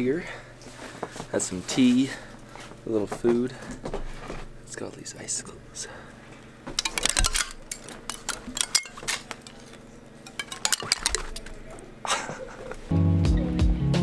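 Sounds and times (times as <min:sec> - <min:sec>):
icicles clinking: 0:06.7 - 0:12.0.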